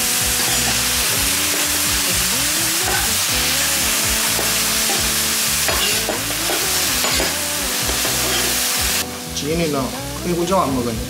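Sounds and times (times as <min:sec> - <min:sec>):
vegetables sizzling on a griddle: 0:00.0 - 0:11.0
metal spatulas scraping a griddle: 0:00.4 - 0:02.1, 0:02.8 - 0:03.2, 0:05.7 - 0:08.7.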